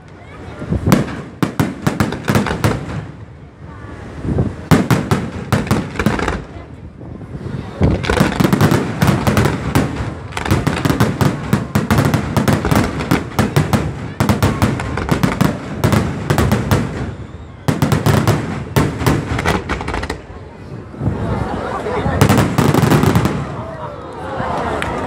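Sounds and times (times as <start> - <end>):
fireworks bursting with sharp bangs: 0.8 - 3.3, 4.6 - 6.7, 7.8 - 20.4, 22.2 - 23.6.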